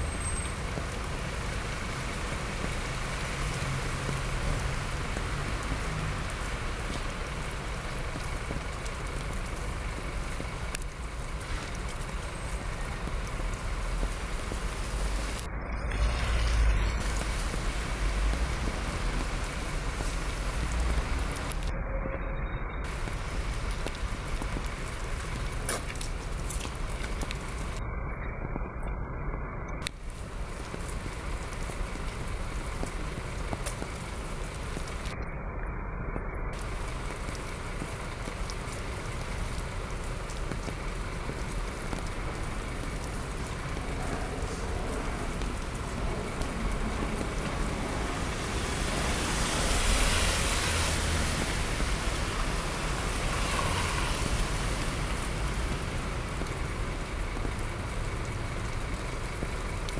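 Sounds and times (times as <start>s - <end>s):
water splashing onto street: 0.0s - 21.7s, 22.8s - 27.8s, 29.8s - 35.2s, 36.5s - 59.9s.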